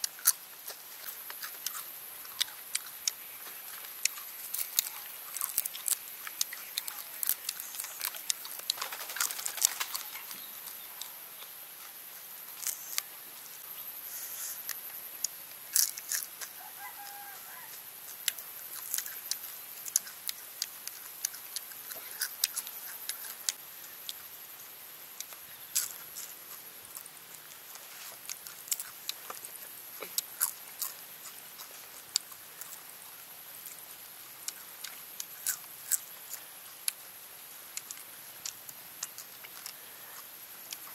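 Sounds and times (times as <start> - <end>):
sharp crackles of snapping: 0.0 - 11.2, 14.6 - 16.6, 18.1 - 24.2, 25.2 - 32.9, 37.7 - 40.9
crunching and chewing: 0.0 - 40.9.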